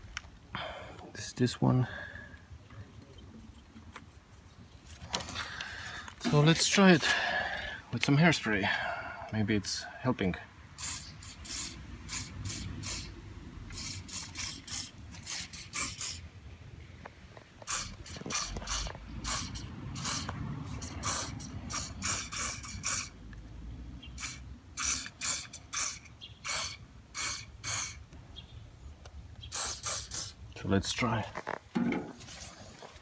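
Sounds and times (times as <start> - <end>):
aerosol spray hissing squirts: 10.8 - 16.2, 17.6 - 23.1, 24.2 - 28.0, 29.5 - 30.4.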